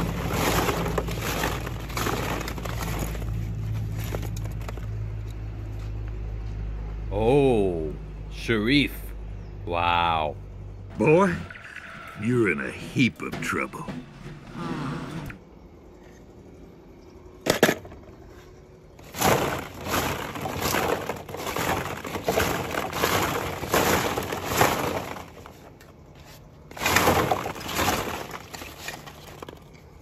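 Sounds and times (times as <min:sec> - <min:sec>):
small objects clattering: 0:00.0 - 0:05.4, 0:19.0 - 0:30.0.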